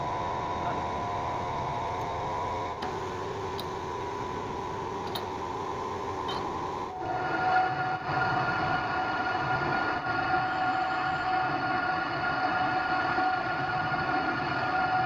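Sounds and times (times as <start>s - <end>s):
machinery hum: 0.0s - 15.0s.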